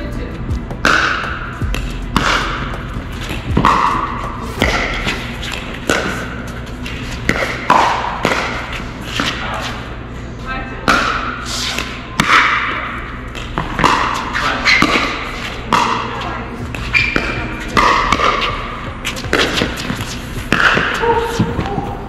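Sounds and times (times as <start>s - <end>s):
paddles popping against ball: 3.3s - 6.3s.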